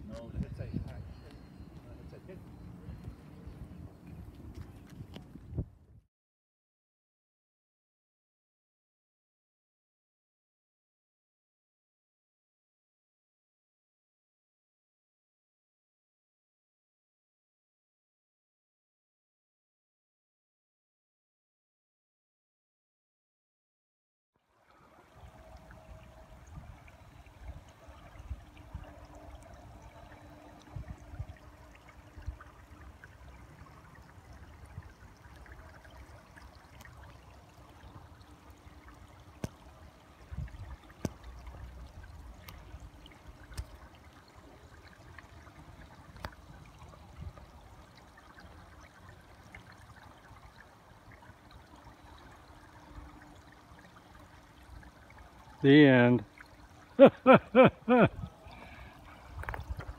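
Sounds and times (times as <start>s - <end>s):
wind gusts on microphone: 0.0s - 6.0s, 40.3s - 40.8s, 58.0s - 58.6s, 59.3s - 59.9s
creek trickling over rocks: 24.4s - 59.9s.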